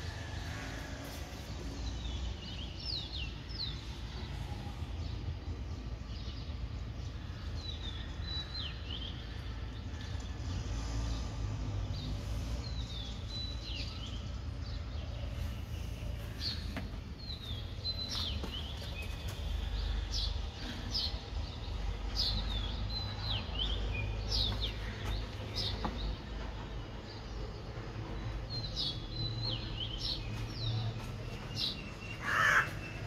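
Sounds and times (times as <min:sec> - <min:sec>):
small birds chirping: 0:00.0 - 0:33.0.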